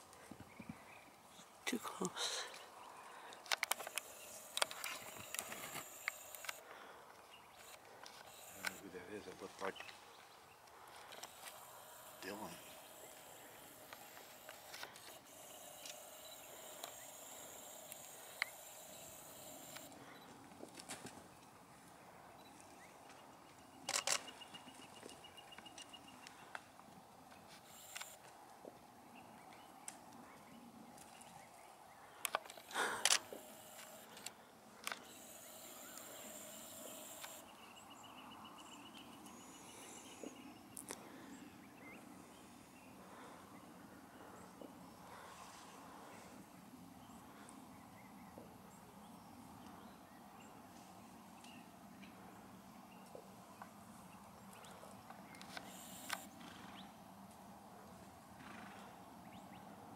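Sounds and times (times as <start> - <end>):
faint steady hiss and hum: 0.0 - 59.9
small clicks: 3.3 - 6.6, 7.6 - 8.9, 11.0 - 21.1, 23.9 - 24.3, 27.5 - 28.3, 32.2 - 37.4, 54.5 - 56.3
faint hiss: 10.8 - 20.2, 35.0 - 37.9.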